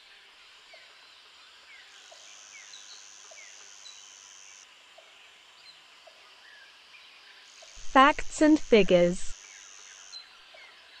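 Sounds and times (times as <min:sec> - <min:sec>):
high-pitched buzz: 0:07.8 - 0:09.3.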